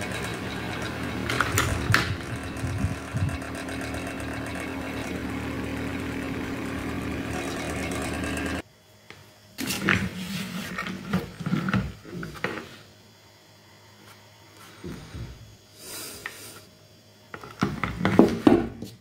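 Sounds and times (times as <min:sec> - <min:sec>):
electric fan motor humming: 0:00.0 - 0:08.6.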